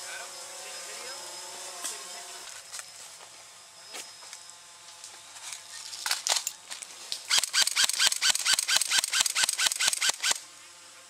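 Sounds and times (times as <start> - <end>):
scattered clicks: 7.2 - 10.4
airsoft rifle firing shots: 7.3 - 10.4.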